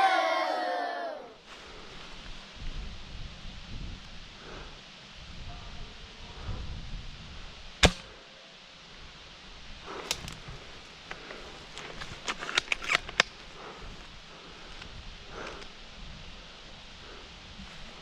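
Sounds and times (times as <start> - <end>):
airsoft gun shots: 7.8 - 8.1.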